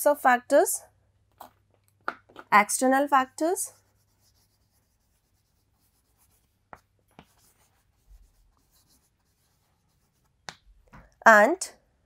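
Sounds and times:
chalk scratching on chalkboard: 3.7s - 10.6s
chalk taps: 3.8s - 11.1s.

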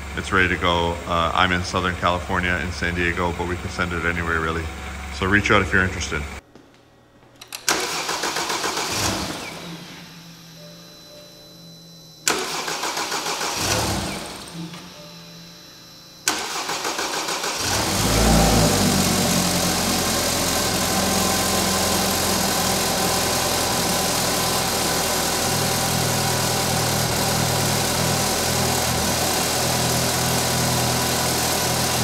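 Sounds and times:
engine starter cranking: 7.4s - 10.4s, 12.2s - 15.0s, 16.2s - 32.0s
car engine idling: 16.2s - 32.0s.

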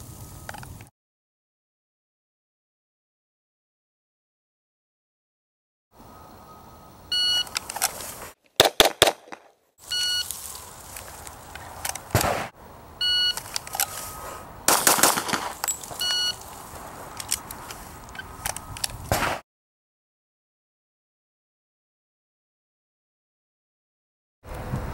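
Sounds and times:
shot timer beeps: 7.1s - 7.6s, 9.9s - 10.3s, 13.0s - 13.4s, 16.0s - 16.4s
pistol shots: 8.6s - 9.4s, 12.1s - 12.6s, 14.7s - 15.7s, 19.1s - 19.4s.

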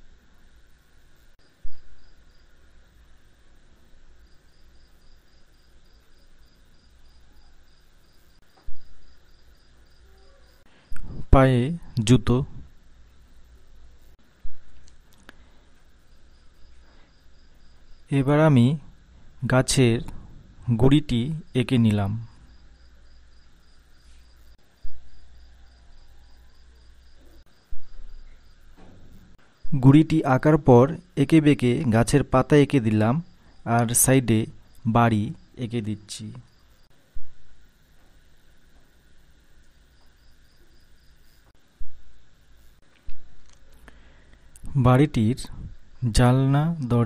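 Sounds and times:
cricket chirping: 0.0s - 47.0s
dull low thumps: 27.7s - 28.2s.

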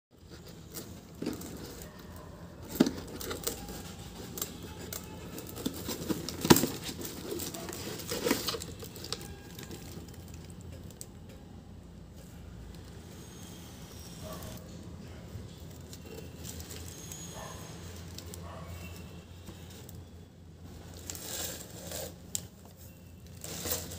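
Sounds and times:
cardboard tearing: 2.6s - 10.2s.

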